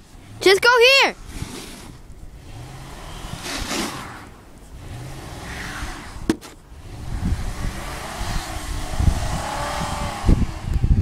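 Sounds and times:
truck engine running: 0:01.9 - 0:11.0
swish of noise: 0:02.8 - 0:10.1.

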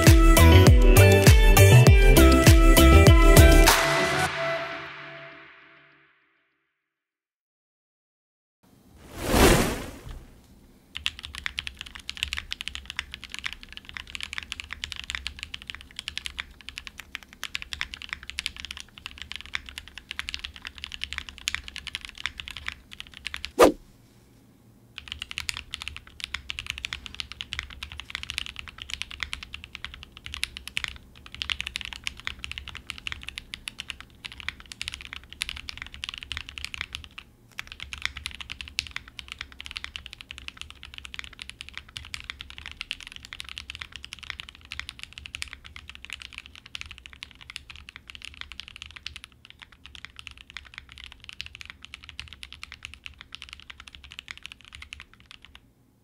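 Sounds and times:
typing on mechanical keyboard: 0:11.0 - 0:23.5, 0:25.0 - 0:55.7.

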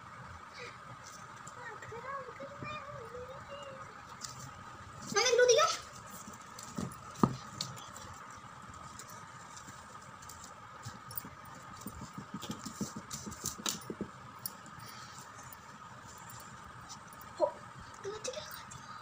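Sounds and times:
faint high whine: 0:00.0 - 0:19.0
hands rustling paper: 0:04.1 - 0:14.1.

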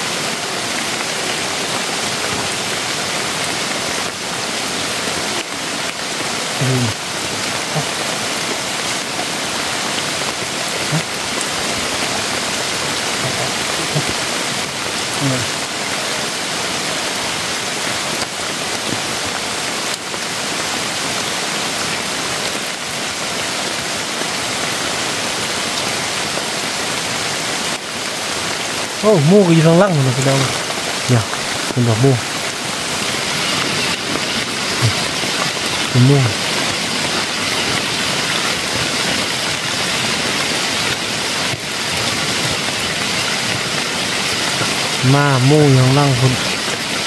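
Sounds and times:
rain on leaves and tarp: 0:00.0 - 0:47.0
faint pitched sounds: 0:13.0 - 0:14.2.

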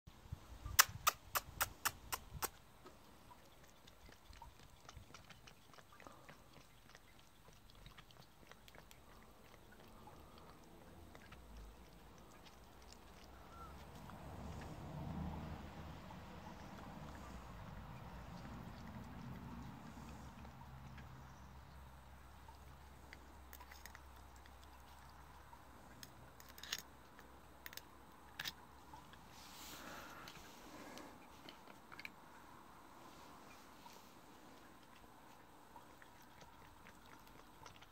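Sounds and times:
fox licking and nibbling: 0:00.7 - 0:37.9
teeth clicking on metal: 0:00.8 - 0:02.6
soft chewing: 0:00.8 - 0:37.9.

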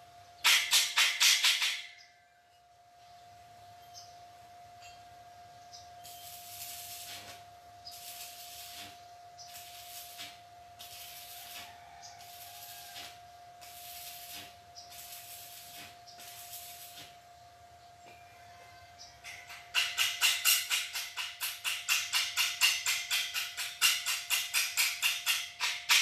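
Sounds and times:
arc welding crackling hiss: 0:00.0 - 0:02.1, 0:06.0 - 0:17.3, 0:19.3 - 0:26.0.

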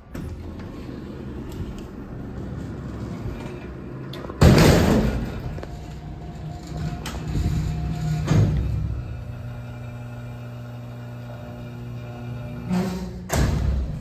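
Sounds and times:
elevator doors opening with hum: 0:00.0 - 0:14.0
loud metal bang: 0:04.4 - 0:05.6.

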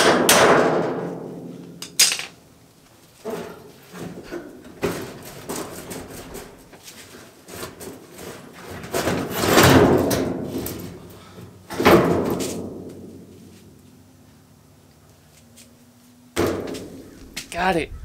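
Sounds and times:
metal clang: 0:00.0 - 0:02.4
sheet metal flexing and scraping: 0:03.2 - 0:12.8.

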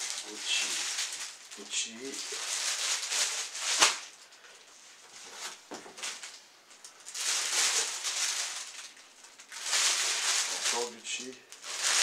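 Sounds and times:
plastic bags crinkling: 0:00.0 - 0:12.0.

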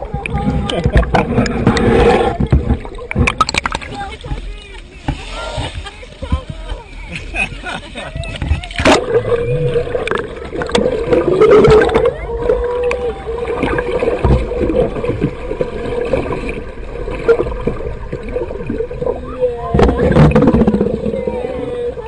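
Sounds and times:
water rushing and bubbling: 0:00.0 - 0:22.0
clicks and knocks: 0:00.8 - 0:03.9.

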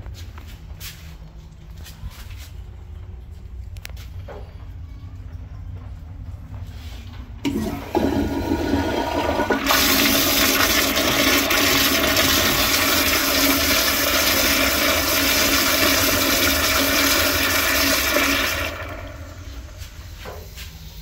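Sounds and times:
toilet flushing: 0:07.4 - 0:20.6.

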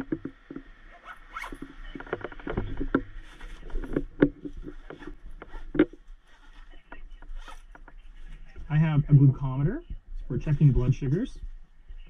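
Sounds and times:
clicks and rustles in soft bag: 0:00.0 - 0:08.8.

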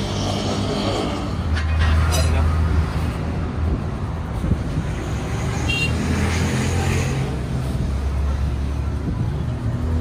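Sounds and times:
vehicle traffic rumble: 0:00.0 - 0:10.0.

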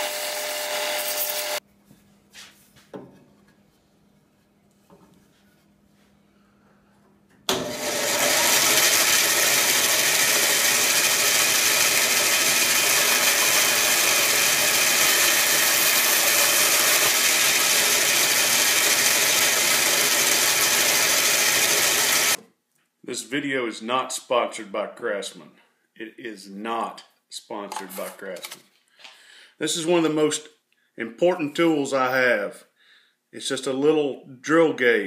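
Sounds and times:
bandsaw cutting wood: 0:00.0 - 0:01.6, 0:07.5 - 0:22.4.

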